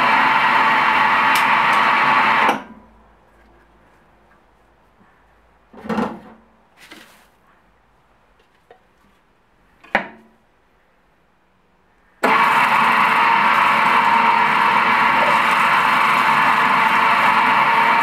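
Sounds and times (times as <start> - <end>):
machine whirring hum: 0.0 - 4.7, 12.2 - 18.0.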